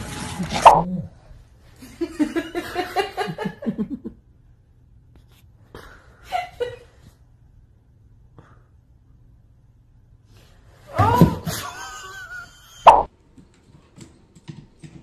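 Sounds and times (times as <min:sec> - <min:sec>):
person laughing: 0:11.1 - 0:12.9.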